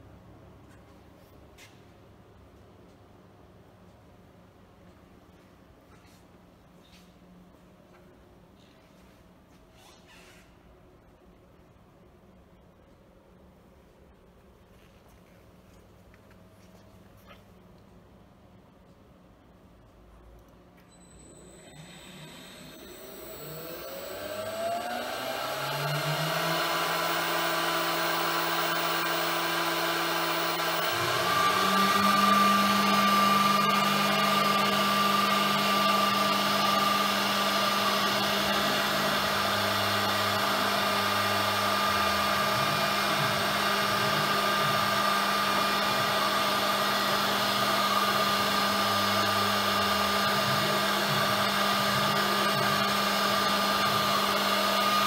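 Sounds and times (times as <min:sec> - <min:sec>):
machine whine: 0:20.8 - 0:55.0.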